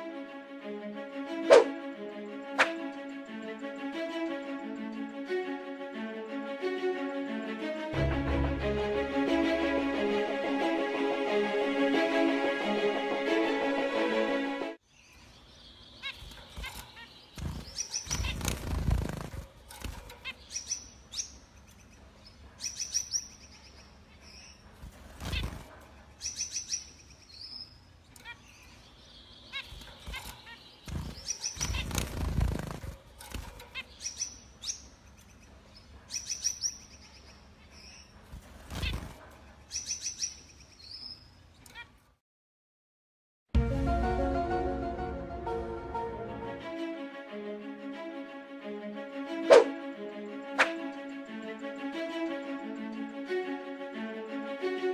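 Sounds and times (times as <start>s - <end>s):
finches chirping: 15.0s - 41.8s.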